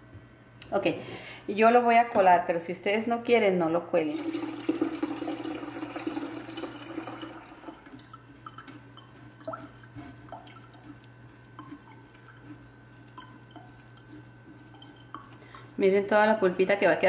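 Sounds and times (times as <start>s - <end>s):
liquid pouring through strainer: 4.1s - 15.8s
drips: 4.2s - 17.0s.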